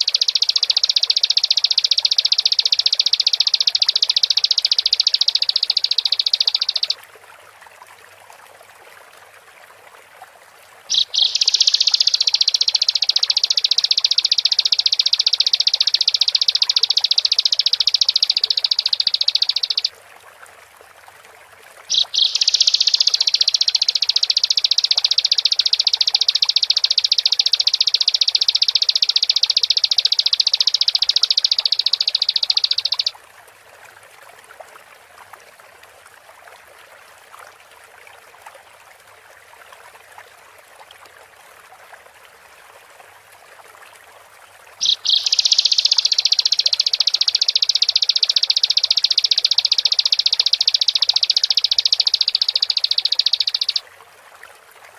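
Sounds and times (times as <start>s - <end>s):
bird singing high-pitched trills: 0.0s - 7.0s, 10.9s - 19.9s, 21.9s - 33.1s, 44.8s - 53.8s.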